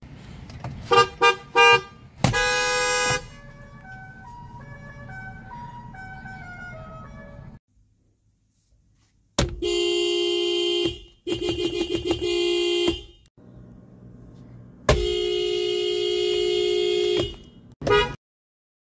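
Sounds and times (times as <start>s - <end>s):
car horn honking: 0.8s - 7.5s, 9.6s - 13.3s, 14.9s - 18.2s.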